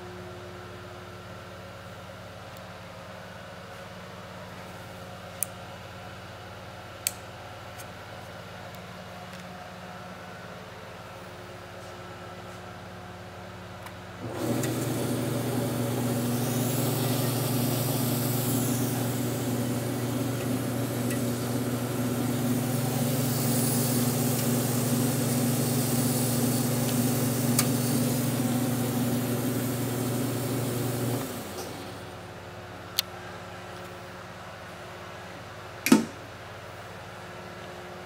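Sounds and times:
bandsaw running: 0:14.2 - 0:32.0.

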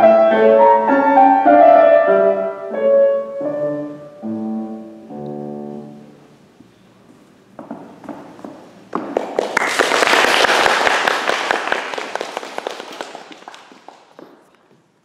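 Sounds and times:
audience applauding: 0:09.0 - 0:14.5.

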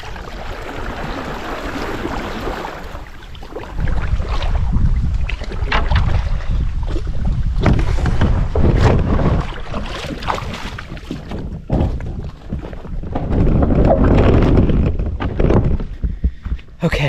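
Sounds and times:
paddle strokes splashing: 0:00.0 - 0:14.6
wind buffeting microphone: 0:00.0 - 0:17.0
hull scraping on gravel: 0:11.6 - 0:16.3.

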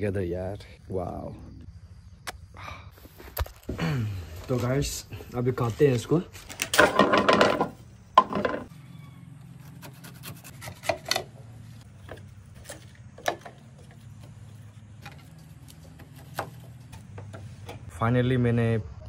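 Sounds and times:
knife slicing pineapple skin: 0:09.6 - 0:11.3.

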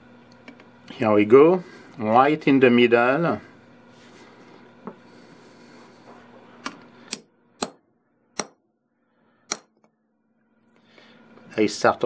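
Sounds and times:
hammer striking steel punch: 0:07.1 - 0:08.6, 0:09.5 - 0:09.9.

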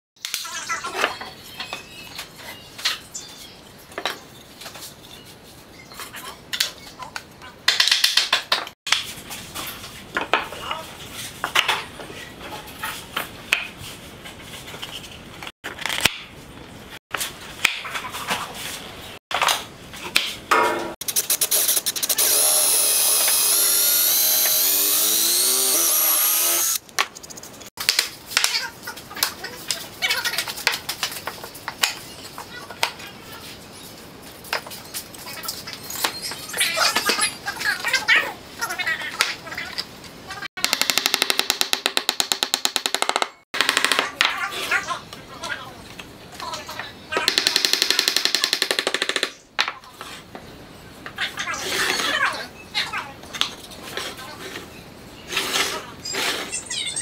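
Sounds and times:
power tool running: 0:21.2 - 0:26.8.

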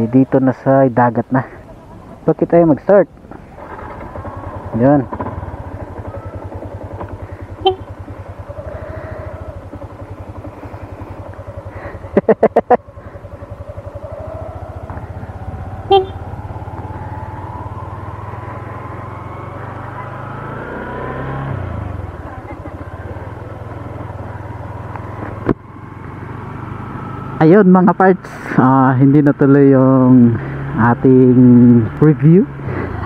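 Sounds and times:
scooter engine idling and revving: 0:00.0 - 0:33.0
short horn beeps: 0:07.6 - 0:07.9, 0:15.9 - 0:16.2
rapid loud horn toots: 0:07.6 - 0:08.0, 0:15.9 - 0:16.2.

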